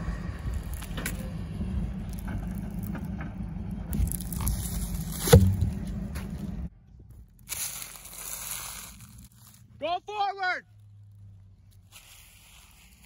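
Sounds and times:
loud thump: 5.2s - 5.9s.

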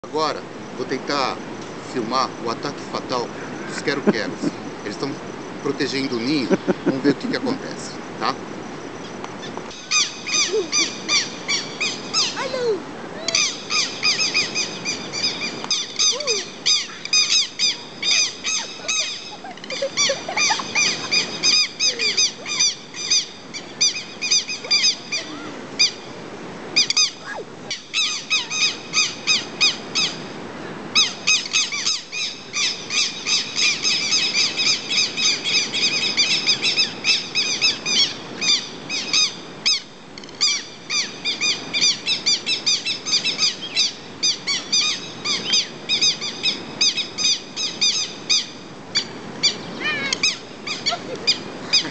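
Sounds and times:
lapwings harsh alarm calls: 9.4s - 12.6s, 13.3s - 26.1s, 26.8s - 30.2s, 30.9s - 51.9s.

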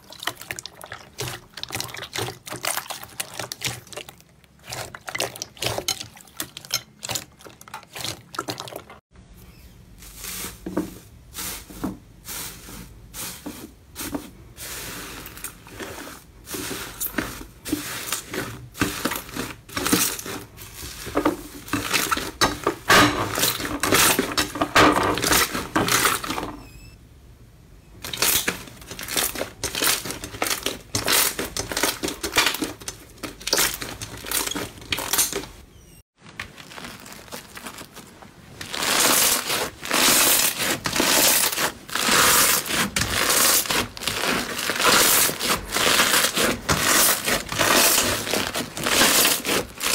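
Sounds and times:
hands squeezing slime: 36.5s - 49.9s.

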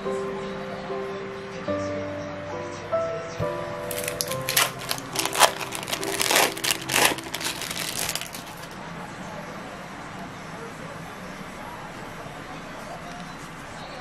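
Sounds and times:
soft background music: 0.0s - 8.8s
plastic wrapper crinkling: 3.9s - 8.8s.

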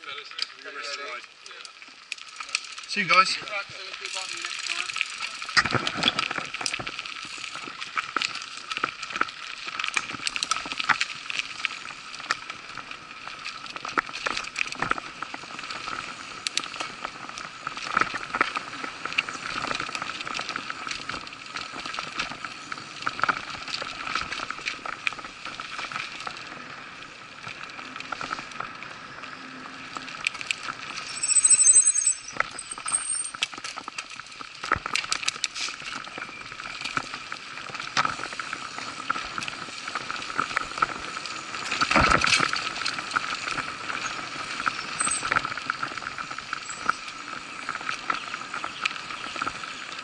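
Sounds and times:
bike tyres on dirt trail: 0.8s - 50.0s
bike rattling and clicking: 2.1s - 3.0s, 4.0s - 29.0s, 29.8s - 50.0s.

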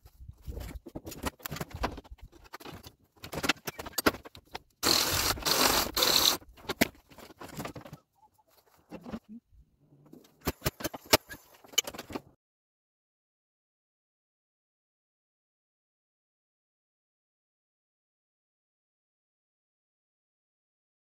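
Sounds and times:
knocks and clicks of tools: 10.1s - 12.3s.

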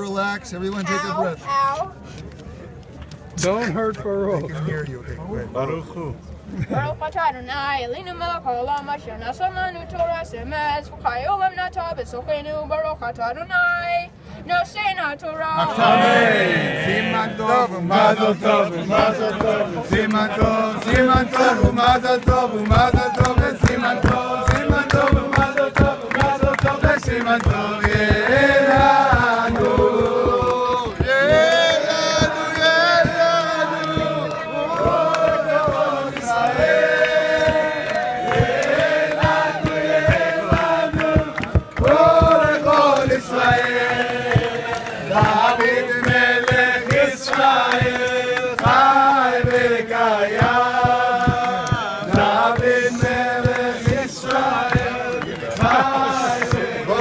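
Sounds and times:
crowd singing in unison: 15.6s - 57.0s
hand clapping: 18.9s - 57.0s.

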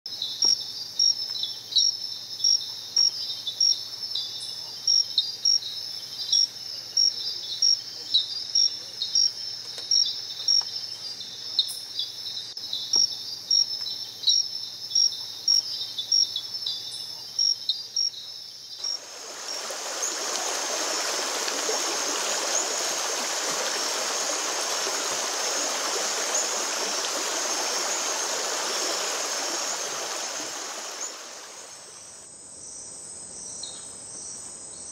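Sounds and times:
high insect drone: 0.1s - 34.9s
night insects chirping: 0.1s - 34.9s
stream rushing: 18.8s - 32.1s.

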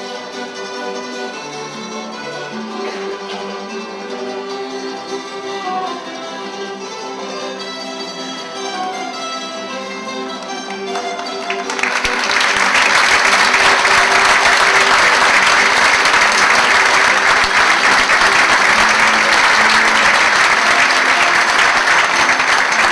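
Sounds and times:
faint plucked-string band music: 0.0s - 11.7s
audience applauding: 10.2s - 22.9s.

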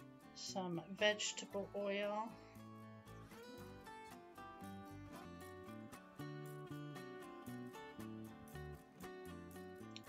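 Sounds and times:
quiet plucked string music: 0.0s - 10.0s.

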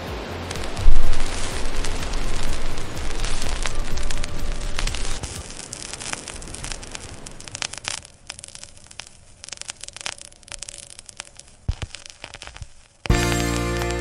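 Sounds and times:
loud low rumble with hiss: 0.0s - 5.2s
hiss with crackles and clicks: 0.0s - 14.0s.

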